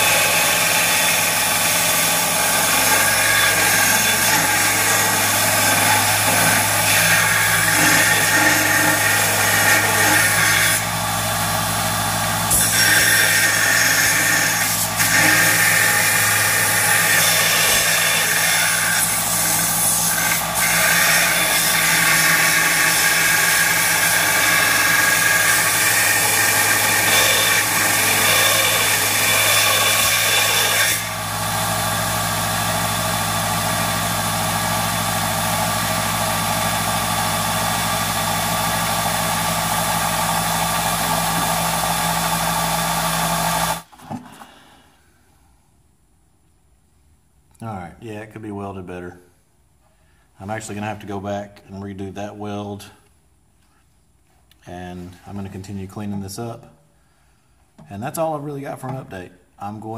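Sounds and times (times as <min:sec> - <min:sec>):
bench grinder grinding steel: 0:00.0 - 0:43.9.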